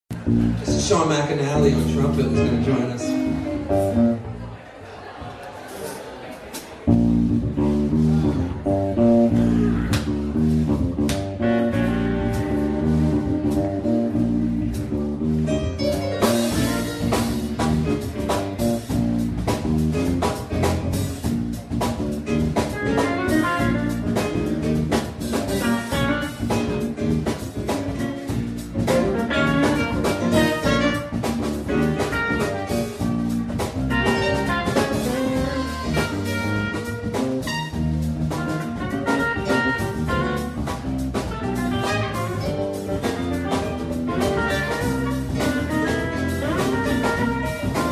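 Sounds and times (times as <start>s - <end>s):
bass guitar: 0.0s - 4.6s, 6.5s - 47.9s
drum kit: 0.1s - 4.3s, 5.7s - 47.9s
electric guitar: 6.9s - 47.9s
trumpet playing lead: 11.4s - 14.8s, 15.6s - 17.6s, 22.7s - 24.4s, 25.5s - 26.6s, 28.9s - 47.9s.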